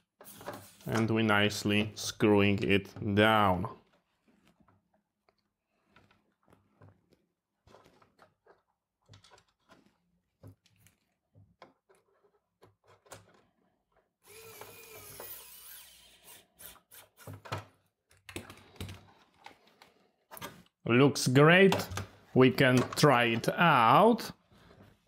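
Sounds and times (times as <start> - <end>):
screw grinding creak in plastic: 14.2 - 17.5.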